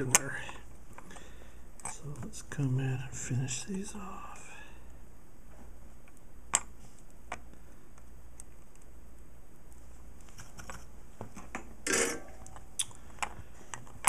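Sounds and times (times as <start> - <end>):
low steady hum: 0.0 - 14.0
circuit board clattering: 11.8 - 12.7.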